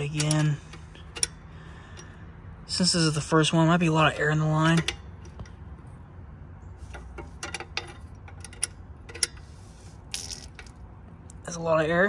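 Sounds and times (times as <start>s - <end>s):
wrench clicking on metal: 0.0s - 2.2s, 3.9s - 5.6s, 6.9s - 9.5s.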